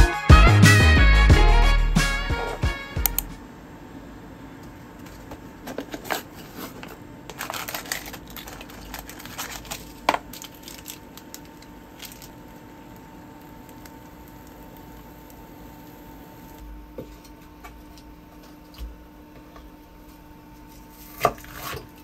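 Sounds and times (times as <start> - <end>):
faint steady hum: 2.6 - 22.0
plastic packaging crinkling: 5.1 - 12.6.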